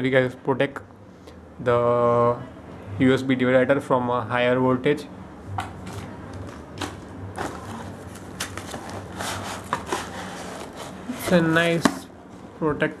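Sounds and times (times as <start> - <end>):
cardboard box being opened: 7.4 - 11.9.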